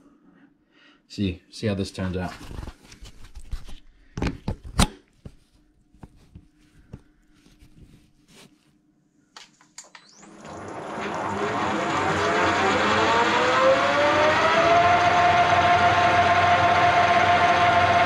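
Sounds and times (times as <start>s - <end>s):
lathe motor whining: 10.2s - 18.0s.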